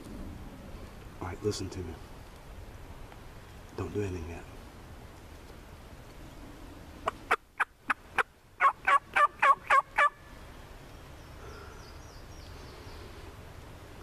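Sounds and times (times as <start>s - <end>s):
turkey clucking and yelping: 7.0s - 10.2s.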